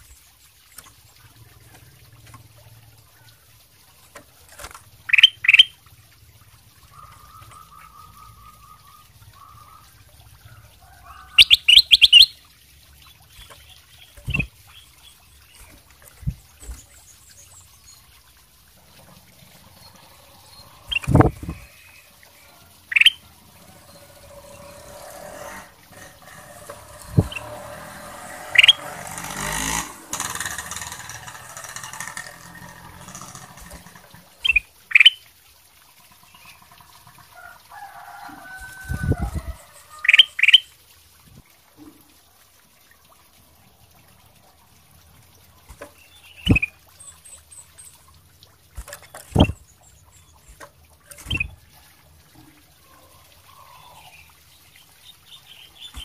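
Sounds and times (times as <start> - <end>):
wing flutter: 3.9 - 5.6, 13.2 - 34.8, 48.7 - 51.8
bird warbling: 5.0 - 5.8, 6.8 - 10.0, 10.9 - 12.4, 13.3 - 18.0, 18.8 - 35.2, 38.6 - 40.7, 45.7 - 48.0, 48.8 - 51.6
bird chirping: 5.1 - 5.8, 11.1 - 12.4, 13.2 - 18.1, 19.7 - 22.2, 22.9 - 23.2, 28.5 - 28.9, 34.4 - 35.2, 46.0 - 48.0.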